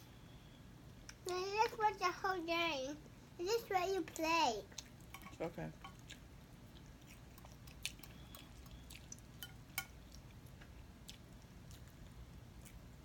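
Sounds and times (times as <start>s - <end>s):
soft chewing: 4.0s - 13.0s.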